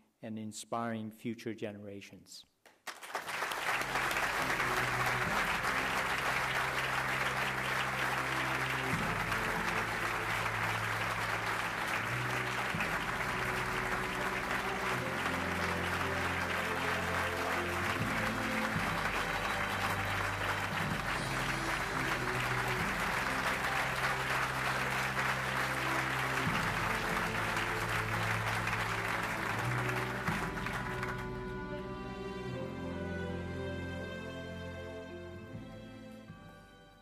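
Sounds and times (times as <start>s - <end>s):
audience applauding: 2.7s - 31.8s
instrumental music: 3.5s - 37.0s.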